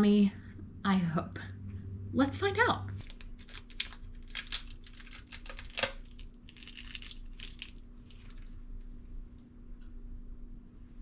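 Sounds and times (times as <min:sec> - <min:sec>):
plastic lid crinkling: 0:03.0 - 0:08.6.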